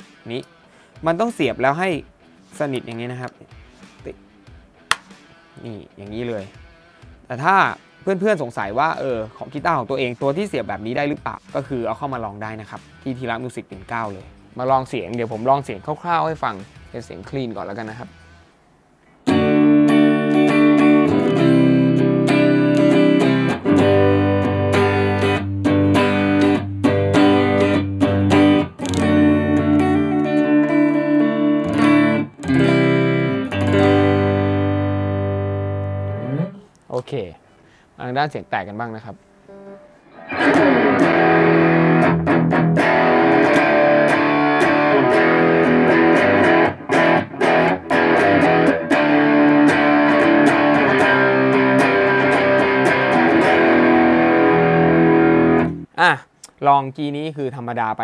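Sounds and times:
clean electric guitar chords: 19.3s - 36.7s, 39.5s - 55.9s.

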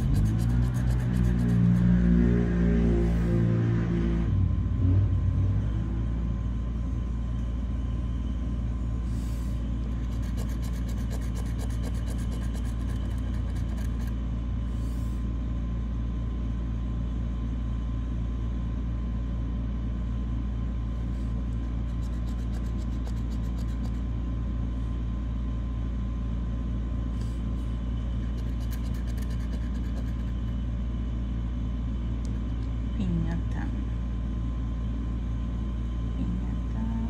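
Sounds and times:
metal tool scratching a ticket: 0.0s - 1.9s, 10.0s - 14.2s, 21.8s - 24.0s, 28.2s - 30.6s
faint hum: 0.0s - 37.0s.

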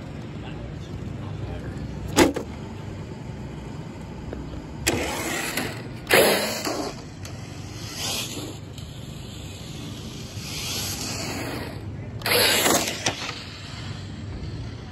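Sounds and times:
rc truck motor bursts: 4.6s - 14.9s.

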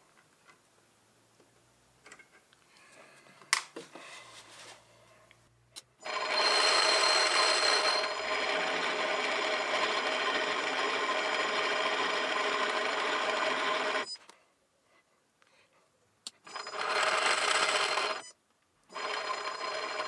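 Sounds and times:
metal lathe whining: 6.0s - 14.1s, 16.5s - 18.2s.

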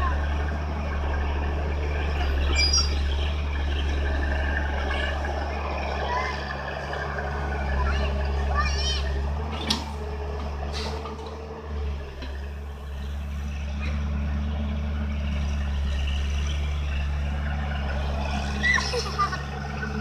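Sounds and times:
child's voice: 0.0s - 0.3s, 4.8s - 5.3s, 5.9s - 6.6s, 7.6s - 9.3s
excavator diesel engine running: 0.0s - 20.0s.

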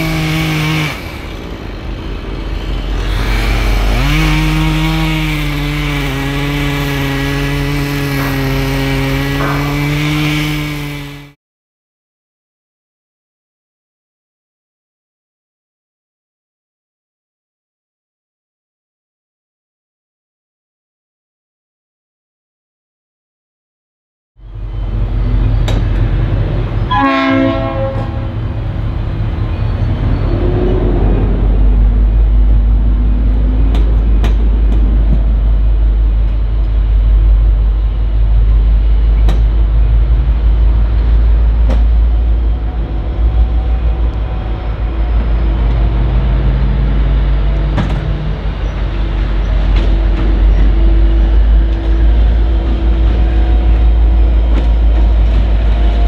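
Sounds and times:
diesel locomotive engine drone: 0.0s - 11.4s, 24.4s - 56.0s
locomotive horn blast: 26.6s - 29.1s.

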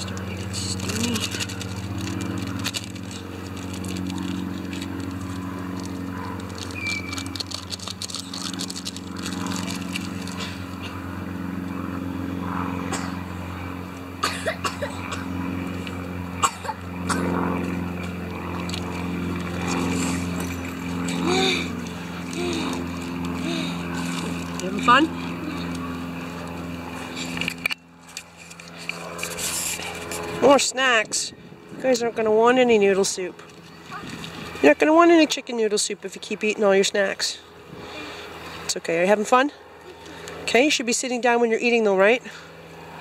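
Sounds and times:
aluminium foil crackling: 0.0s - 10.9s
low motor hum: 0.0s - 43.0s
food packaging rustling: 0.6s - 10.4s.

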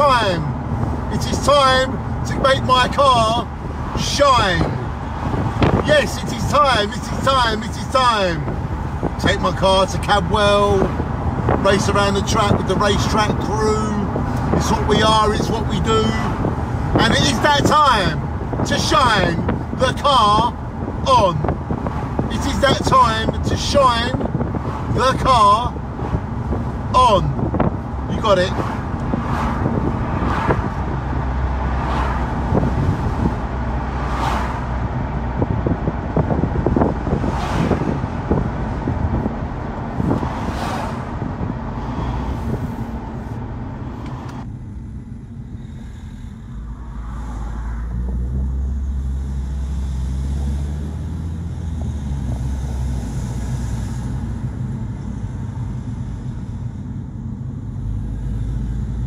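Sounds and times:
wind buffeting: 0.0s - 44.5s
car engine and tyres rumbling: 0.0s - 59.0s.

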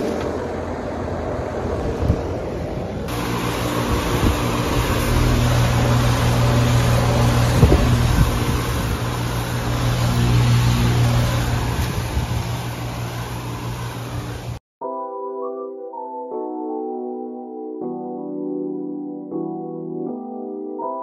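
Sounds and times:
compressor humming: 0.0s - 14.6s
condenser fan rushing: 0.0s - 14.6s.

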